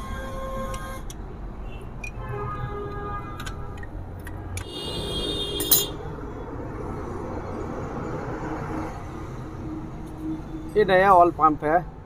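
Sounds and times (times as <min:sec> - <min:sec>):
hand tool clinking on metal: 0:05.6 - 0:05.9.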